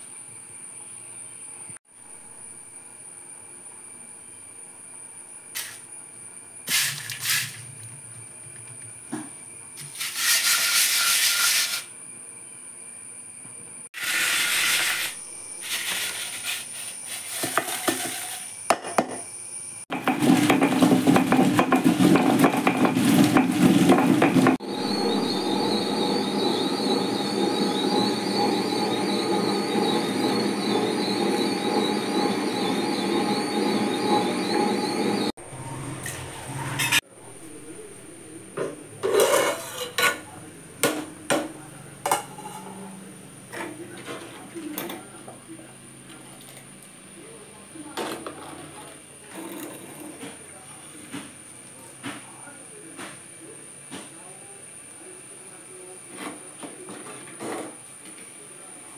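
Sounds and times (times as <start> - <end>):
kitchen handling sounds: 15.7 - 19.2, 38.6 - 41.5
electric mixer grinder running: 19.9 - 36.6.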